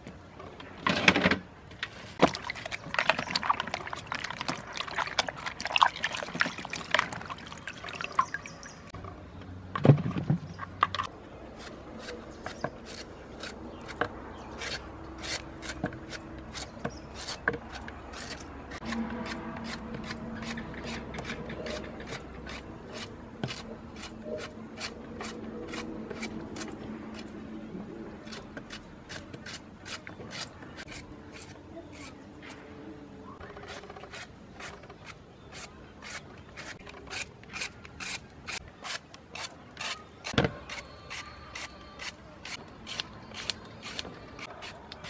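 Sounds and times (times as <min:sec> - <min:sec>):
knife scraping root vegetable: 0:11.5 - 0:27.3, 0:28.2 - 0:32.6, 0:33.5 - 0:45.0.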